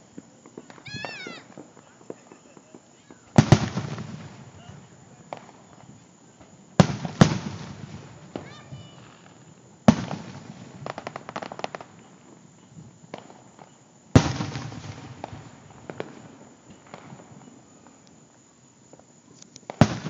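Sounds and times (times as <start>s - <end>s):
fireworks boom: 0.0s - 12.0s
fireworks sharp bang: 0.0s - 12.0s, 13.1s - 17.5s, 19.7s - 20.0s
fireworks crackling: 0.0s - 20.0s.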